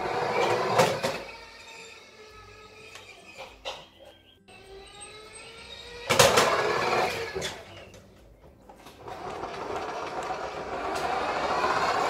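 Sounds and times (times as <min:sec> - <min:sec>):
wheels rolling on wooden floor: 0:00.0 - 0:12.0
toy car electric motor whirring: 0:04.5 - 0:07.9, 0:08.8 - 0:12.0.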